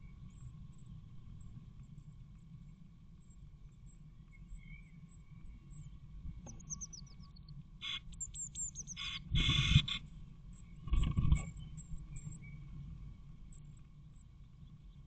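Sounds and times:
nestlings chirping: 6.6s - 10.0s.

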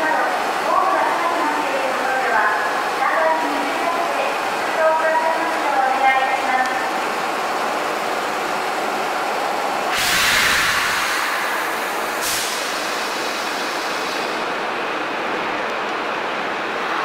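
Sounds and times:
stopped train and platform noise: 0.0s - 17.0s
compressed air hissing: 9.9s - 14.4s.

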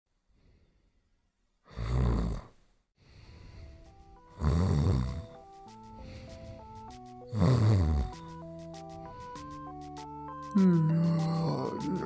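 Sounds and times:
loud snoring: 1.7s - 2.6s, 4.3s - 5.4s, 7.2s - 8.3s
simple tune of held notes: 3.4s - 12.0s.

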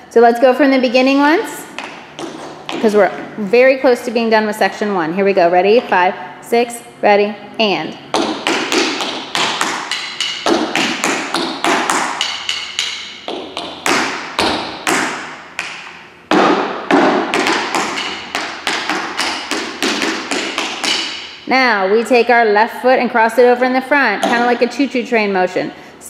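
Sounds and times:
tap shoes on wooden floor: 1.7s - 3.3s, 8.1s - 21.2s.

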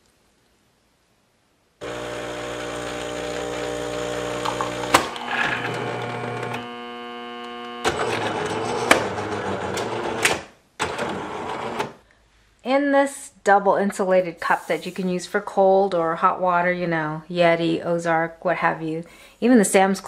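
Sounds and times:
espresso machine pump humming: 1.8s - 9.6s.

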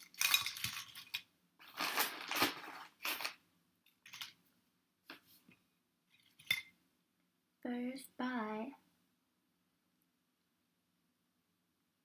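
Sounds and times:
potato chips rustling and crackling: 0.0s - 3.4s.

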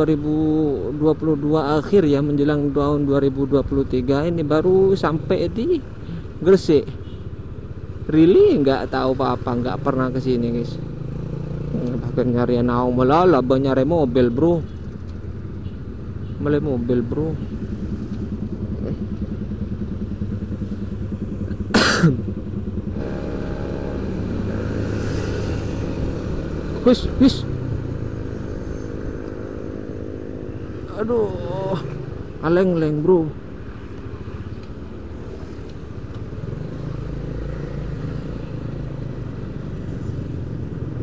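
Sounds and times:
motorcycle engine idling: 17.2s - 24.6s
motor scooter engine pulling away: 22.9s - 29.4s.

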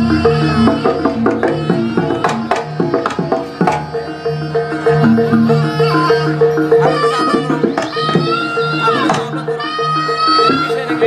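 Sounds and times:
hand drum strikes: 0.0s - 4.2s, 6.8s - 10.7s
held pitched ensemble notes: 0.0s - 11.0s.

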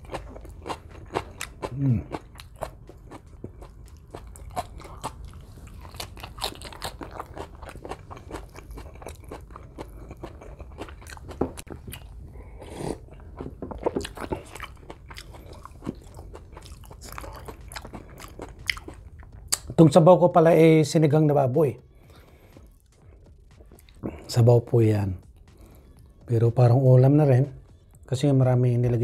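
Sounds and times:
close-miked wet chewing: 0.0s - 19.8s.

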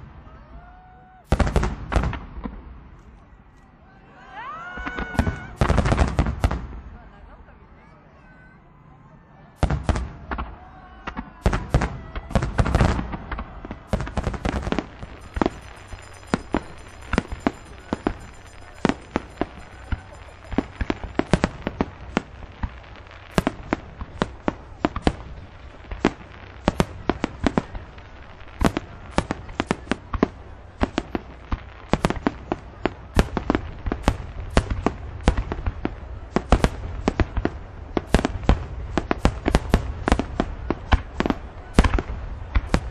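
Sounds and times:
firework shells bursting: 13.9s - 27.7s.

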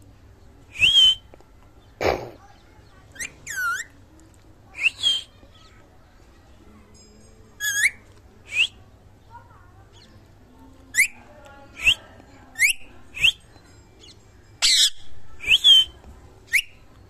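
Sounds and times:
parakeet calls and whistles: 0.7s - 1.3s, 3.1s - 4.0s, 4.7s - 5.4s, 7.6s - 8.8s, 10.9s - 11.2s, 12.6s - 16.8s.

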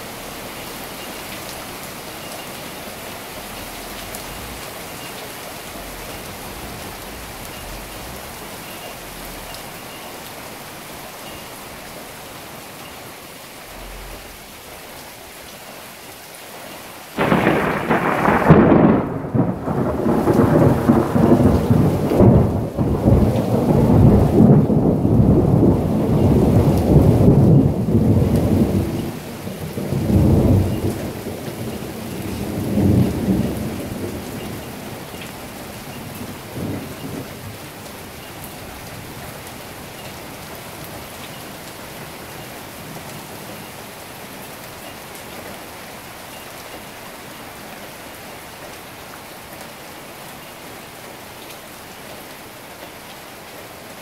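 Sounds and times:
heavy rain: 0.0s - 54.0s
thunder rumbling: 2.9s - 10.0s, 17.2s - 37.6s.

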